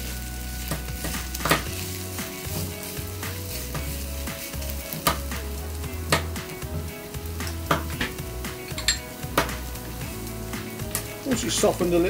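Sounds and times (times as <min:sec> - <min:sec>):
onion sizzling in oil: 0:00.0 - 0:12.0
quiet background music: 0:00.0 - 0:12.0
spatula tapping pan: 0:00.6 - 0:09.7.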